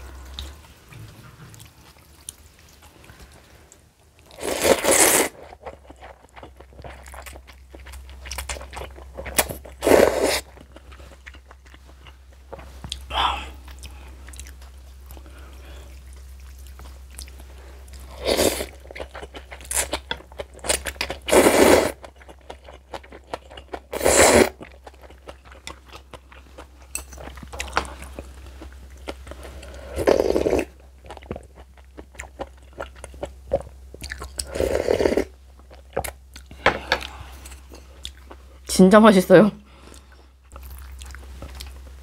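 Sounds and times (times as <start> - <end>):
crunching and chewing: 4.2 - 34.5, 39.8 - 42.0.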